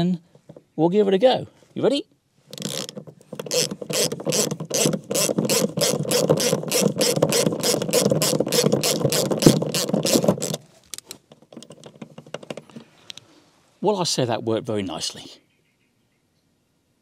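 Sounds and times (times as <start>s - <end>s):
ratchet wrench clicking: 2.5s - 11.0s.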